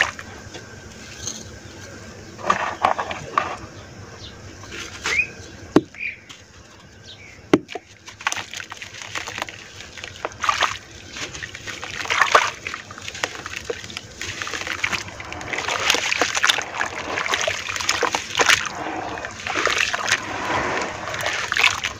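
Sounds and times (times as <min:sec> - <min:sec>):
hands crumbling wet dirt: 0:07.6 - 0:21.9
muddy water splashing: 0:07.7 - 0:21.9.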